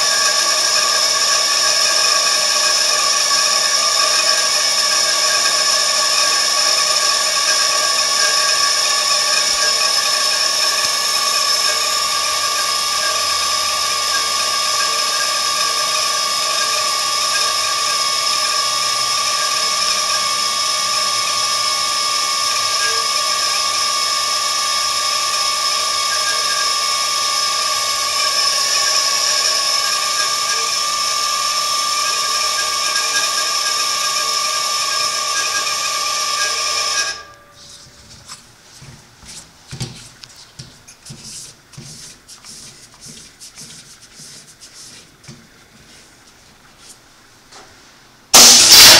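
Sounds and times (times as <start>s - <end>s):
air compressor droning: 0.0s - 37.8s, 48.3s - 48.9s.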